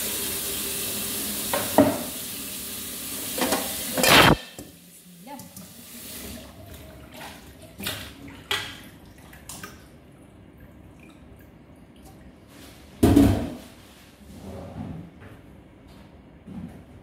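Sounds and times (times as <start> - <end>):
knocks and clinks in metal sink: 3.4 - 4.7.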